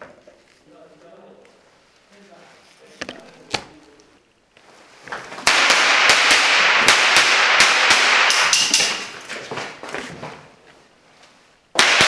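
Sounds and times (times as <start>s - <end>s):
continuous loud hiss: 0.0s - 12.0s
cap guns firing: 5.4s - 9.2s, 11.8s - 12.0s.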